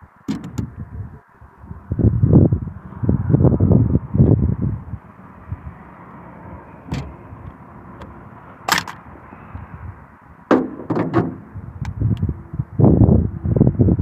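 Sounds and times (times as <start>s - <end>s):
air rifle parts clicking: 8.7s - 9.0s.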